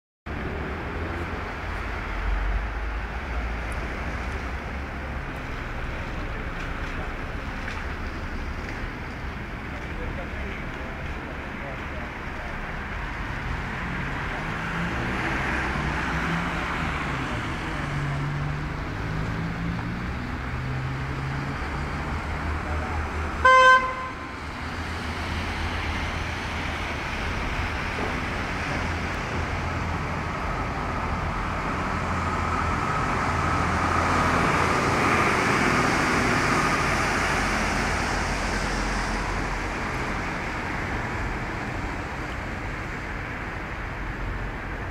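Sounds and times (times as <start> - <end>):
road traffic passing: 0.3 - 44.9
car horn toot: 23.4 - 24.3.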